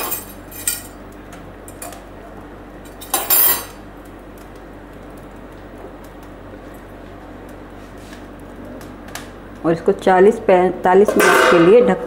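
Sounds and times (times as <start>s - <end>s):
metal cookware clattering: 0.0s - 1.0s, 3.0s - 3.8s, 11.0s - 12.0s.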